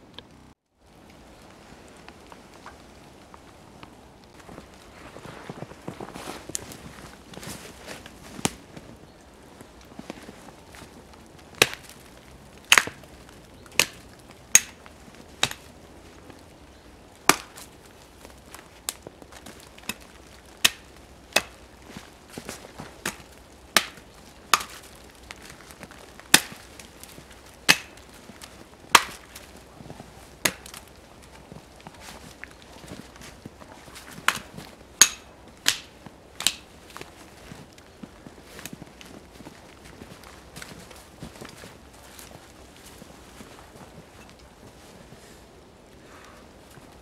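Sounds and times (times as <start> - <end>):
axe chopping tree trunk: 11.5 - 12.0, 12.6 - 13.0, 13.7 - 14.8, 15.4 - 15.7, 17.2 - 17.8, 18.9 - 21.6, 23.0 - 25.6, 26.2 - 29.5, 30.4 - 30.8, 34.2 - 36.7.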